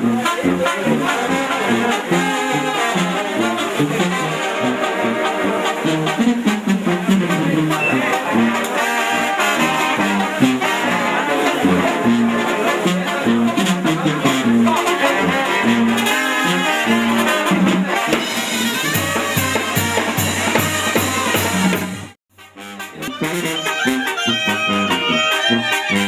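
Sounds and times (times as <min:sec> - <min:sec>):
brass band music: 0:00.0 - 0:26.0.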